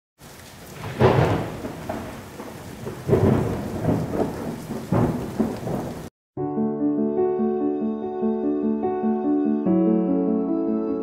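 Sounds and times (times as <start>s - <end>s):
steady rain: 0.2s - 6.1s
thunder rumbling: 0.2s - 6.1s.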